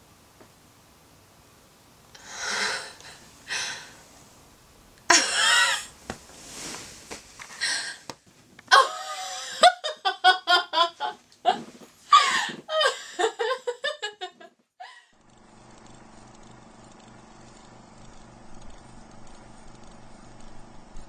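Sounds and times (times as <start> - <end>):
woman gasping: 2.2 - 4.0, 7.6 - 8.1, 11.5 - 13.4.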